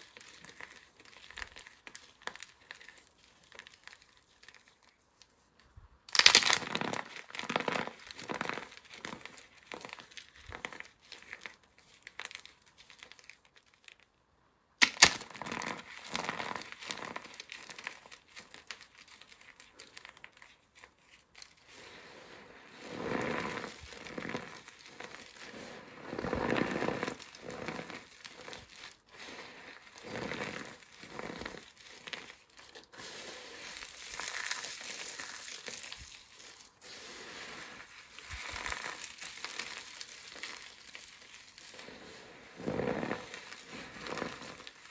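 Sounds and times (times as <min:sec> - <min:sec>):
squeezing and crunching: 0:00.0 - 0:14.0, 0:14.8 - 0:44.9
soap crunching and crackling: 0:00.0 - 0:14.1, 0:14.8 - 0:44.9
sharp snap: 0:14.8 - 0:15.2.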